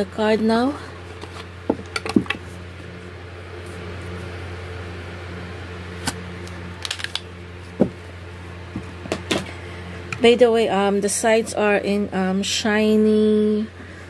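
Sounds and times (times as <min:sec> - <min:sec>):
background hum: 0:00.0 - 0:14.0
card deck and box handling: 0:06.0 - 0:07.9.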